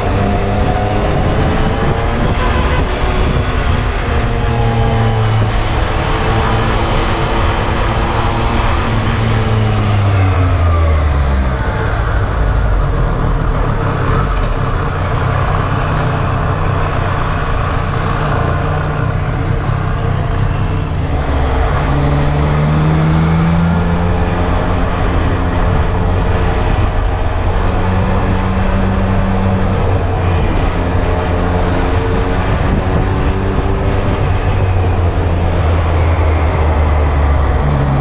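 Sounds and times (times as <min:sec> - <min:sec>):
road and wind noise: 0:00.0 - 0:38.0.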